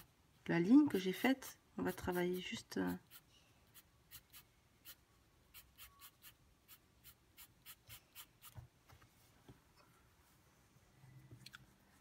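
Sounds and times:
pencil scratching on paper: 0:00.8 - 0:05.0.

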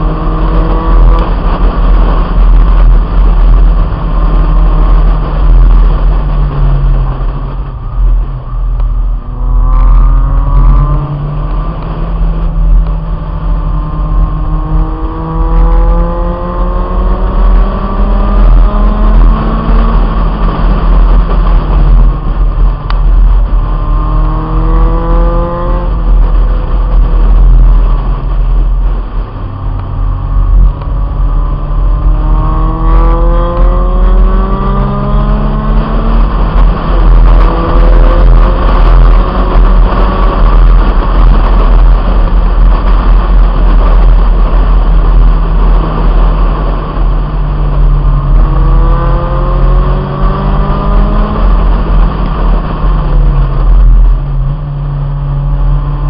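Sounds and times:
car engine accelerating hard: 0:00.0 - 0:56.0
wind rumble on microphone: 0:00.0 - 0:56.0.

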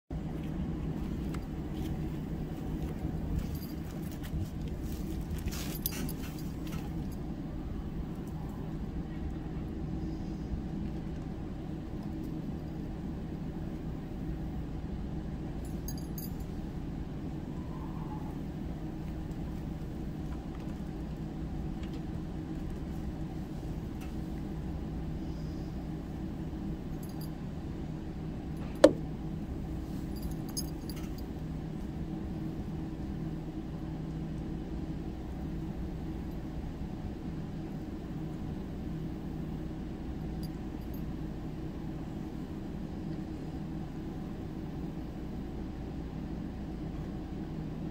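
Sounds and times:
low machine hum: 0:00.1 - 0:47.9
faint metallic jingling: 0:05.4 - 0:07.2.

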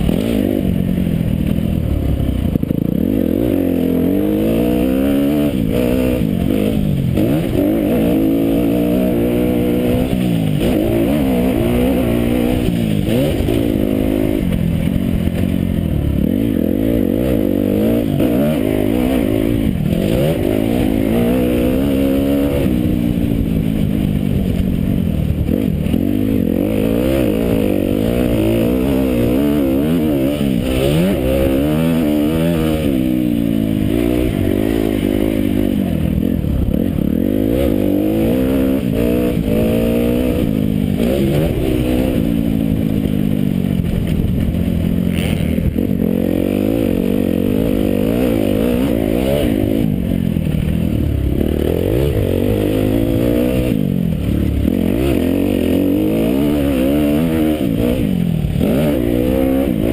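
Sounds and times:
motocross bike engine revving: 0:00.0 - 0:59.9
steady rushing noise: 0:00.0 - 0:59.9.

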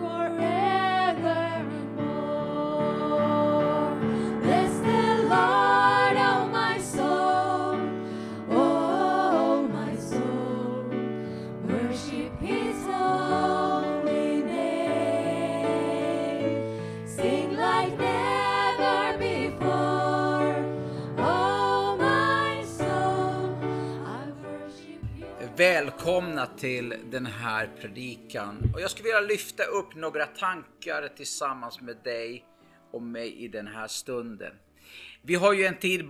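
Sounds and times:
women singing in harmony: 0:00.0 - 0:26.3
piano accompaniment: 0:00.0 - 0:30.8.

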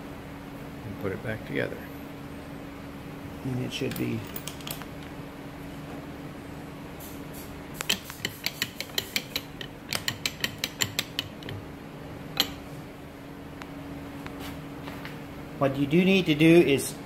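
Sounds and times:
quick metal clicks of bolt tightening: 0:07.8 - 0:11.6.

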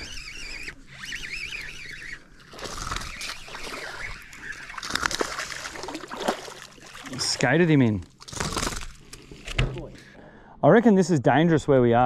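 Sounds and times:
high warbling whistle: 0:00.0 - 0:02.2
fish splashing at water surface: 0:02.5 - 0:07.3.

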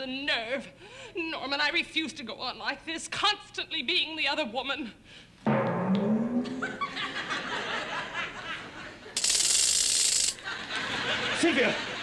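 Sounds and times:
studio audience laughing: 0:06.8 - 0:09.2, 0:10.4 - 0:12.0.

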